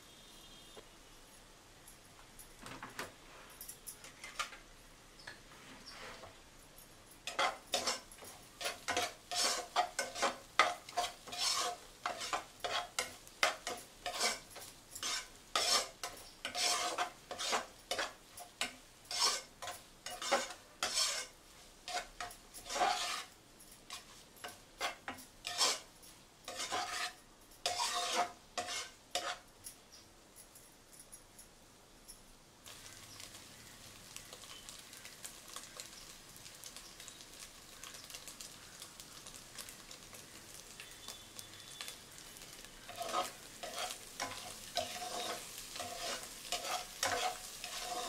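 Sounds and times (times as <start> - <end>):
metal spatula scraping a pan: 5.6 - 6.4, 7.2 - 25.9, 26.5 - 29.5, 42.5 - 48.0.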